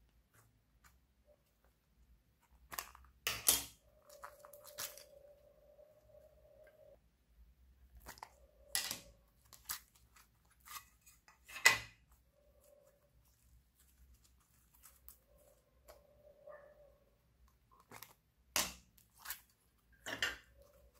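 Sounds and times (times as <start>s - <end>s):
faint hum: 3.8s - 9.5s.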